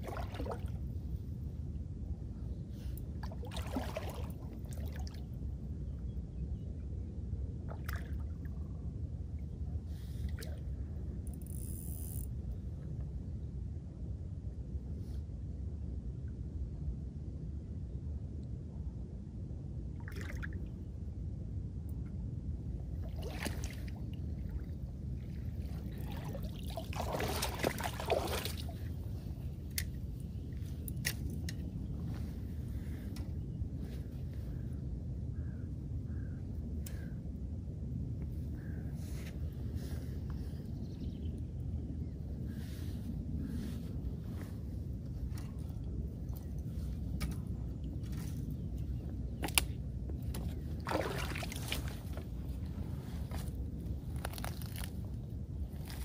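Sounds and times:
water splashing and sloshing: 0:00.0 - 0:01.4, 0:02.8 - 0:05.5, 0:07.6 - 0:10.8, 0:20.0 - 0:20.8, 0:22.9 - 0:33.3, 0:43.6 - 0:48.8, 0:49.4 - 0:56.0
steady low rumble: 0:00.0 - 0:56.0
fish thrashing splashes: 0:26.1 - 0:28.7, 0:50.9 - 0:51.9.

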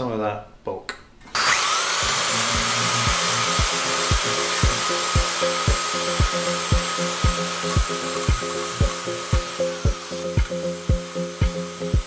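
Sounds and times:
belt sander grinding: 0:01.3 - 0:12.0
background music with beat: 0:02.0 - 0:12.0.

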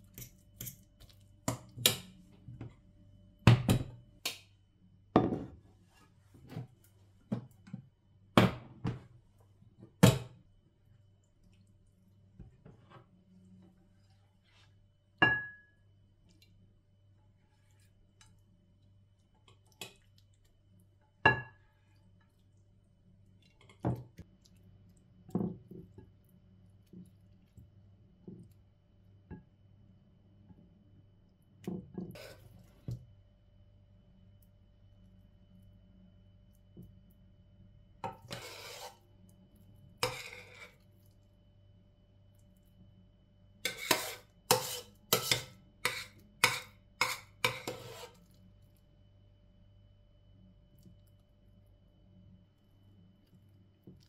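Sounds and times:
metal spoon scraping a pot: 0:32.1 - 0:32.5, 0:38.1 - 0:39.0, 0:40.0 - 0:40.8, 0:43.6 - 0:48.3.

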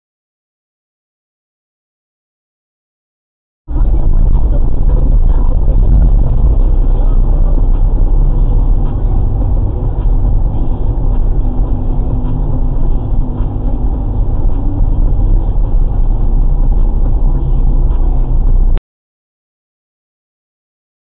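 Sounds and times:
car engine and road rumble: 0:03.7 - 0:18.8.

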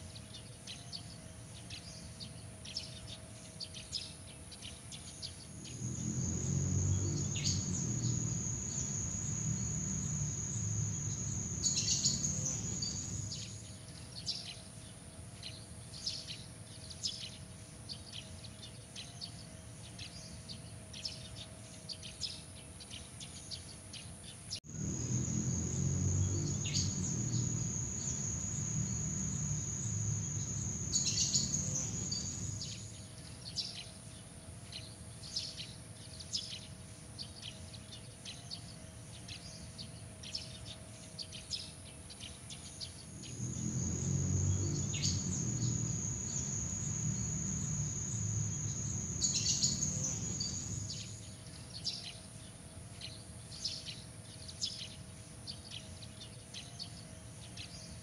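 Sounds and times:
faint steady hum: 0:00.0 - 0:58.0
high insect trill: 0:05.4 - 0:13.8, 0:24.6 - 0:33.0, 0:43.0 - 0:51.4
low rumble: 0:24.7 - 0:32.7.

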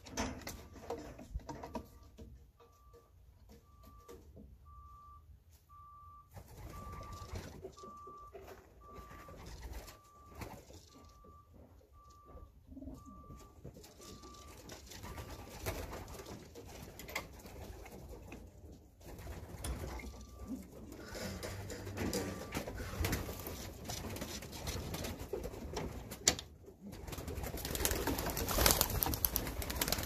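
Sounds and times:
short beeps: 0:02.6 - 0:15.4, 0:20.0 - 0:23.6.

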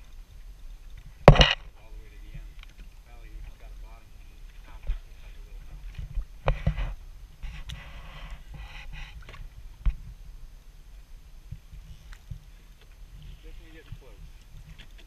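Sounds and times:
low wind rumble: 0:00.0 - 0:14.8
sharp knocks: 0:01.3 - 0:01.7.

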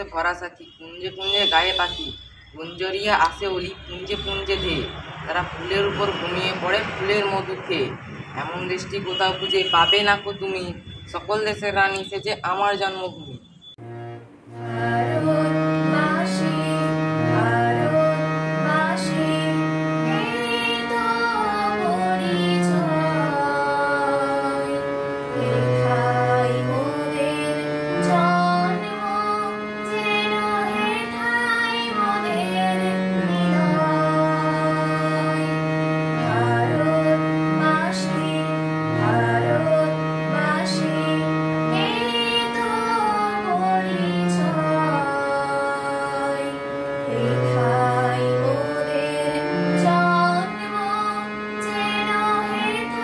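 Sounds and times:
harmonium playing: 0:00.0 - 0:12.1, 0:13.8 - 0:53.0
girl singing: 0:14.7 - 0:35.6, 0:36.2 - 0:53.0.

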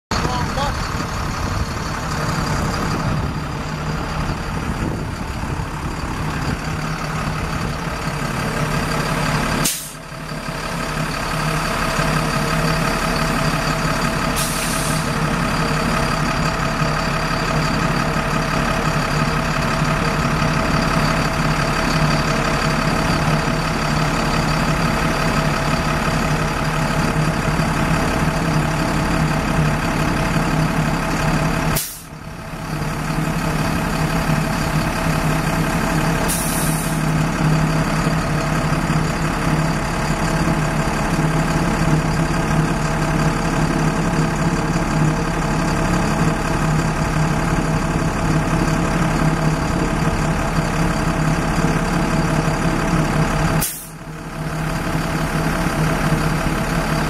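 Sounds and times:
diesel truck engine running: 0:00.1 - 0:57.0
short hydraulic hisses: 0:09.6 - 0:10.0, 0:14.4 - 0:15.1, 0:31.8 - 0:32.1, 0:36.3 - 0:37.0, 0:53.6 - 0:53.9.

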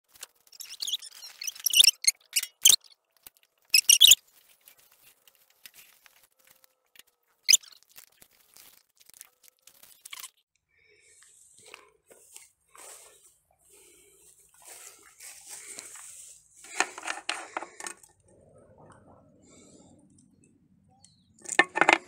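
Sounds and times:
grass crunching and rustling: 0:00.0 - 0:10.4, 0:11.2 - 0:17.8.

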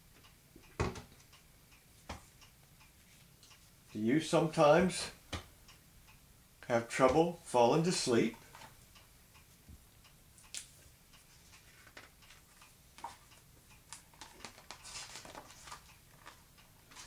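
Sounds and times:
book pages rustling and turning: 0:11.3 - 0:17.0.

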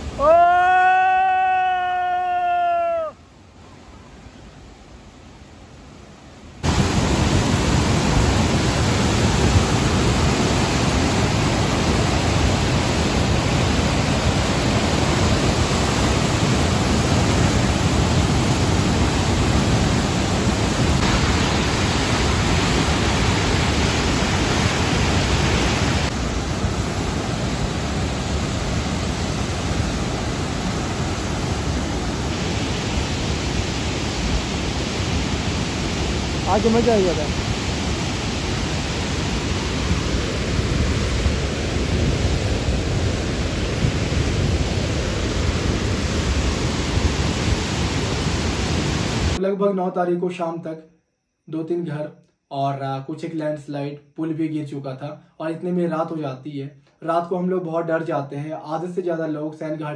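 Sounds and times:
river rushing: 0:00.0 - 0:49.4.

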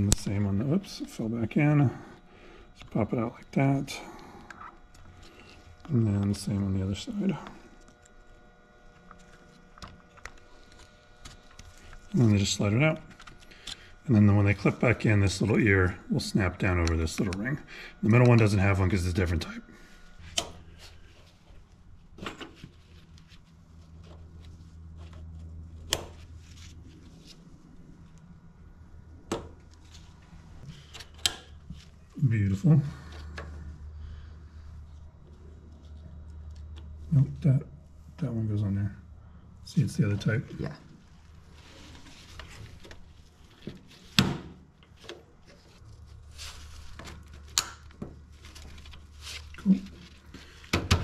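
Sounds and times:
steady low hum: 0:00.0 - 0:51.0
clicks and knocks of connectors: 0:30.9 - 0:31.6, 0:47.0 - 0:48.2.

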